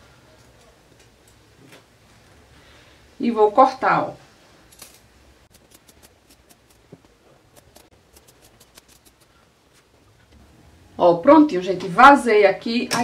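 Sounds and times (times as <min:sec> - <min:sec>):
scissors snipping fabric: 0:04.7 - 0:09.3.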